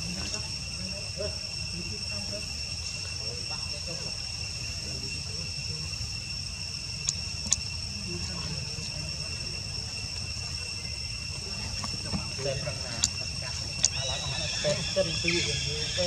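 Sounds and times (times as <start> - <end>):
high-pitched insect drone: 0.0 - 16.0
sharp clicks: 7.0 - 7.6.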